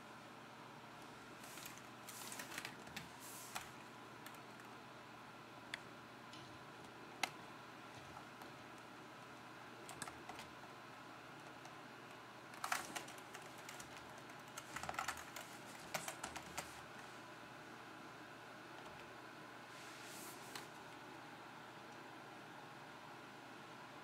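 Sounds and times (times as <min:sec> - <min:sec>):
computer keyboard keys tapping: 0:01.6 - 0:04.8, 0:06.8 - 0:07.4, 0:09.2 - 0:10.6, 0:11.4 - 0:16.8, 0:18.8 - 0:19.1.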